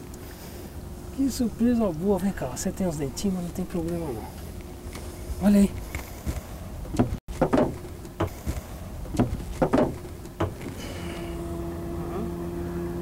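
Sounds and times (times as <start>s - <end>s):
boat motor humming: 0.0s - 13.0s
handling knocks: 6.3s - 10.8s.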